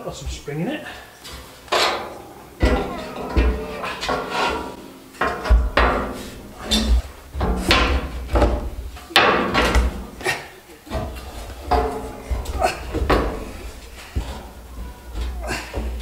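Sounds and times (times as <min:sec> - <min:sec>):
steel bar clanking on metal: 0:01.7 - 0:16.0
dull thuds: 0:02.6 - 0:10.3, 0:10.9 - 0:16.0.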